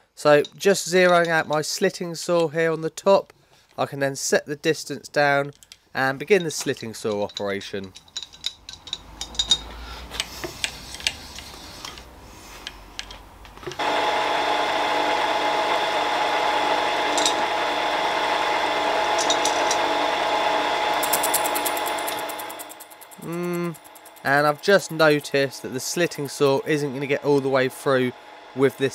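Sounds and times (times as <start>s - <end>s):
milling machine running: 13.8s - 28.9s.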